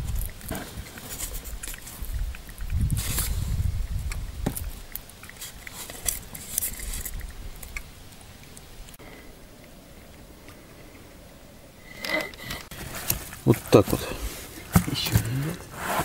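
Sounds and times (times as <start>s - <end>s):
hands rustling fishing tackle: 0.0s - 9.0s.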